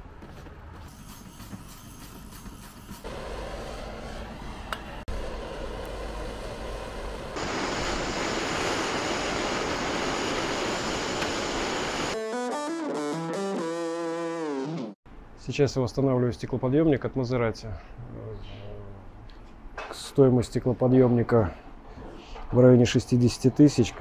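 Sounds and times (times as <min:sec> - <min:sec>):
blowtorch hissing: 0:03.1 - 0:12.2.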